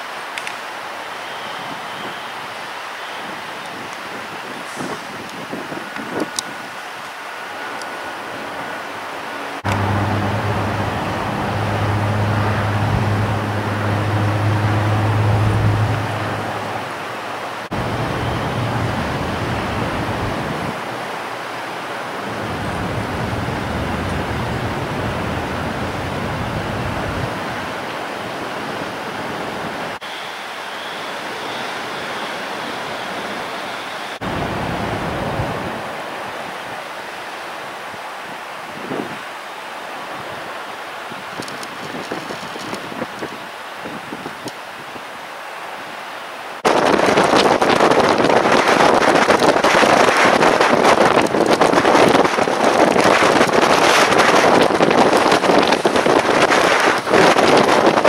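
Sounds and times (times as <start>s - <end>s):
wind buffeting the microphone: 3.2s - 6.8s, 9.6s - 21.1s, 22.2s - 30.0s, 34.2s - 36.0s, 38.7s - 39.2s, 41.1s - 45.1s, 46.6s - 58.0s.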